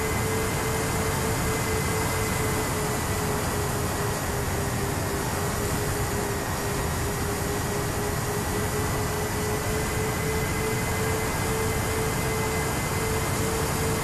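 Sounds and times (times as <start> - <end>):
electric motor whine: 0.0 - 14.0.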